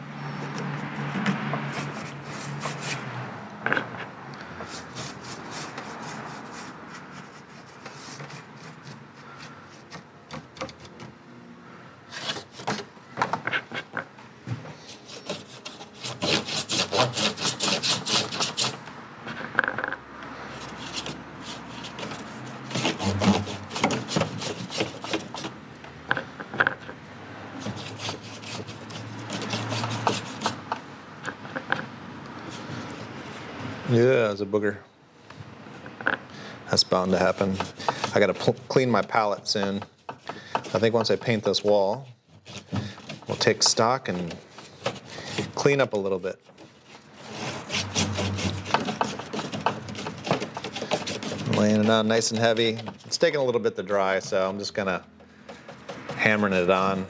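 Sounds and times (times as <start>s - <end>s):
paintbrush scrubbing on wood: 0.7s - 3.1s, 4.6s - 10.0s, 20.5s - 25.6s, 27.5s - 30.8s, 36.7s - 54.8s, 55.5s - 57.0s.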